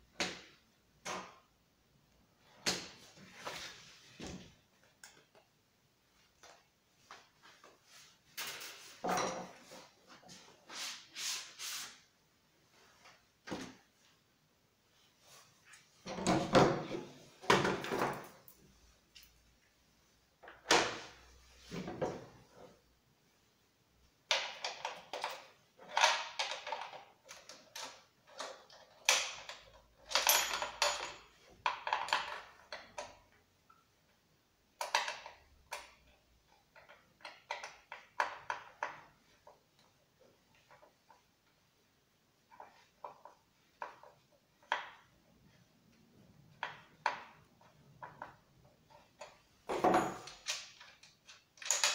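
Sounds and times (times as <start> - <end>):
parts knocking on wooden workbench: 49.7 - 50.3.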